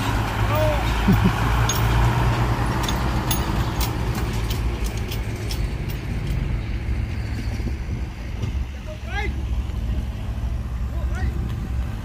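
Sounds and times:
heavy diesel engine droning: 0.0 - 12.0
sharp clicks and knocks: 2.8 - 6.5.

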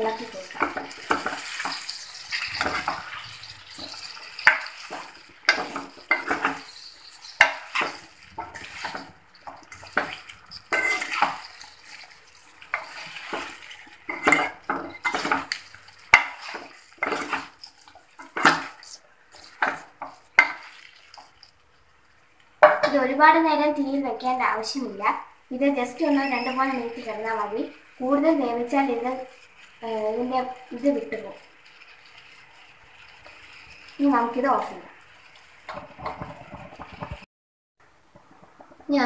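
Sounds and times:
spoon scraping and knocking pan: 0.0 - 21.6, 22.6 - 23.0, 28.7 - 37.2.

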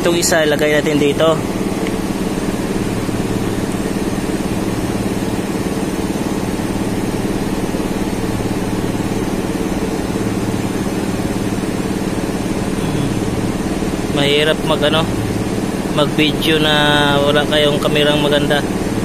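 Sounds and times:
machine droning: 0.0 - 19.0.

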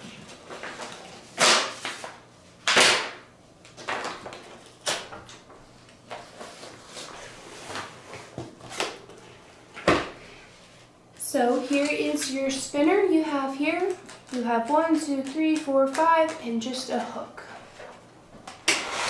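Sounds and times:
paper sheets rustling and flapping: 0.0 - 2.2, 3.7 - 9.1.

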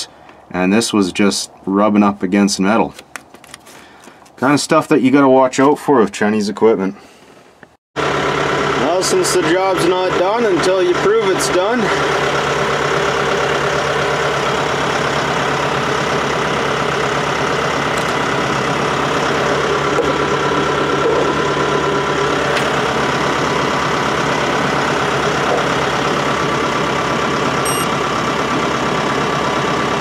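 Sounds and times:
tractor diesel engine idling: 8.0 - 30.0
high beep: 27.6 - 27.9.

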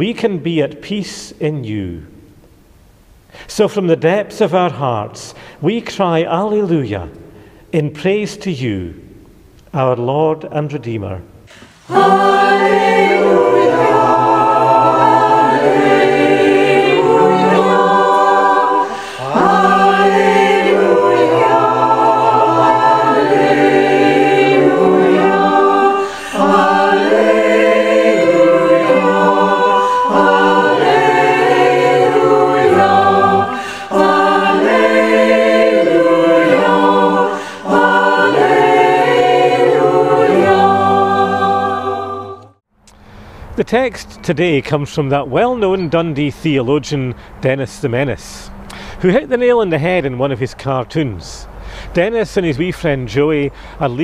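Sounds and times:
unaccompanied choir singing: 11.5 - 42.6.

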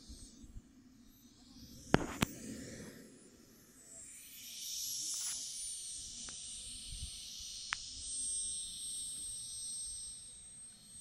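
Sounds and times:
model jet engine whine: 0.0 - 11.0.

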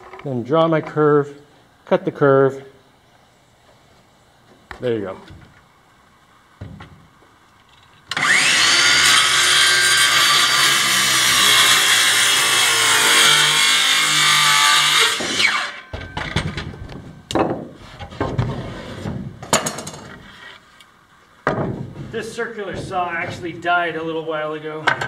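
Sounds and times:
wooden knocks and clatters: 6.6 - 7.8, 15.9 - 20.3, 21.4 - 23.7
circular saw cutting wood: 8.1 - 15.9.

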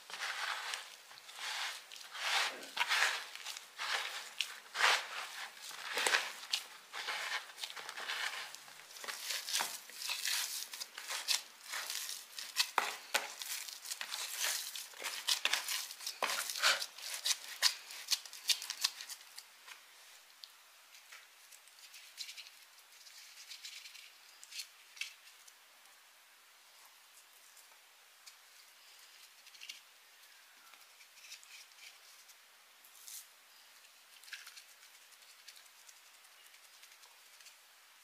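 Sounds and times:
hand kneading damp soil: 0.0 - 18.9.

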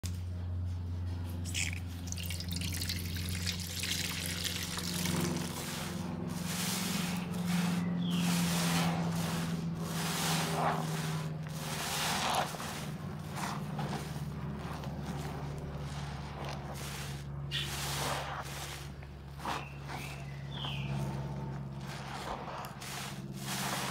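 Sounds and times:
low hum: 0.0 - 23.9
wet sponge squelching: 1.4 - 23.9
liquid dripping into bowl: 1.5 - 5.2.

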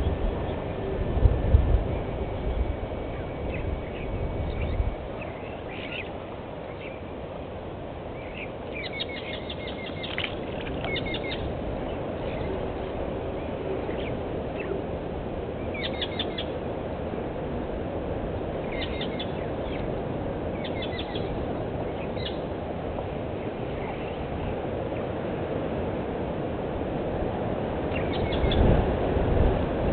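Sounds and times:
birds chirping: 1.9 - 7.2, 8.0 - 14.8, 15.5 - 16.6, 18.6 - 22.5, 23.3 - 25.1, 27.9 - 28.7.

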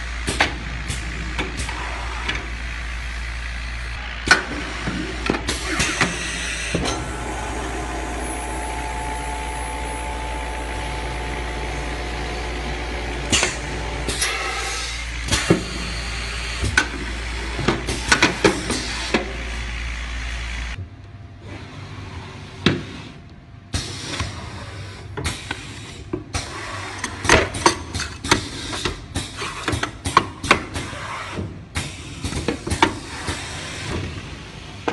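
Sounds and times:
machinery humming: 0.0 - 21.2
faint whine: 6.9 - 14.1.

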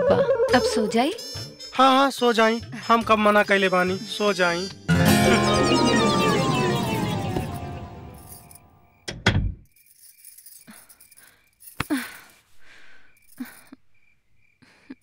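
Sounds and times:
glass bangles jingling: 9.7 - 12.4.

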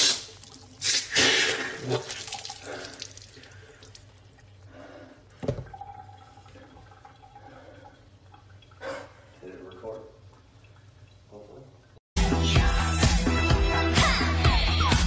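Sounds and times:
liquid dripping and splattering: 0.0 - 4.7.

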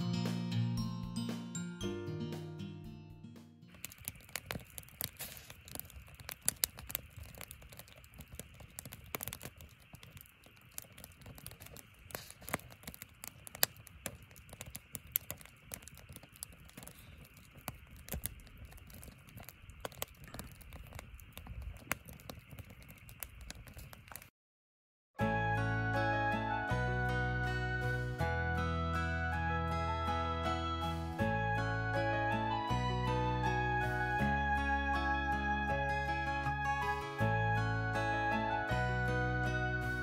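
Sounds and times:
firewood crackling and popping: 3.7 - 24.3, 31.0 - 40.0
rush of flames: 3.7 - 24.3.

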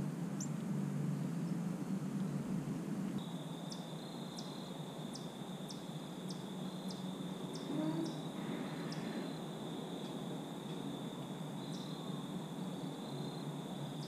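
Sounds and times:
insect trill: 3.2 - 14.0.

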